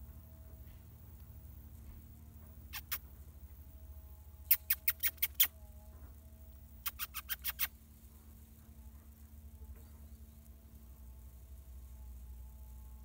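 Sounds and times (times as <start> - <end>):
squeaky animal chirps: 2.7 - 3.0, 4.5 - 5.5, 6.8 - 7.7.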